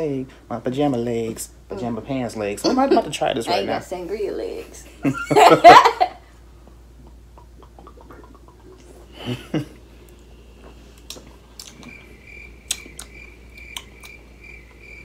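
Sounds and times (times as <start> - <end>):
people swallowing: 7.0 - 10.3, 11.0 - 14.2
faint high pulsing chirp: 10.3 - 15.0.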